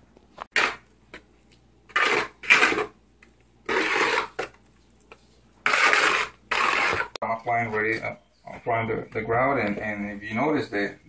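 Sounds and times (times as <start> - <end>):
spatula scraping grout in bucket: 1.9 - 3.0, 3.6 - 4.6, 5.6 - 7.2.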